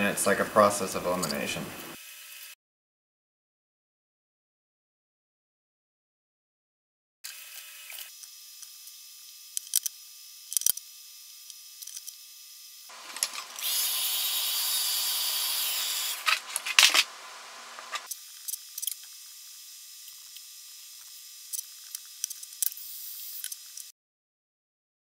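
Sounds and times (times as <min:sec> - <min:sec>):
heat gun blowing hiss: 0:12.9 - 0:17.0.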